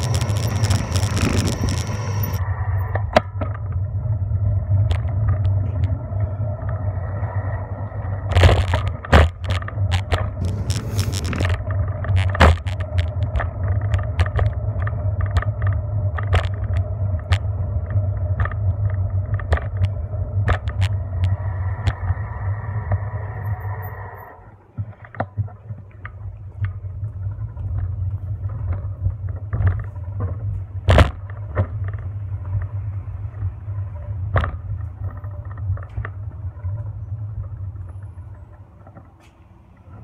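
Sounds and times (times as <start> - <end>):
bicycle rolling on pavement: 0.0 - 39.3
bicycle knocks and rattles: 8.2 - 22.2, 24.7 - 39.3.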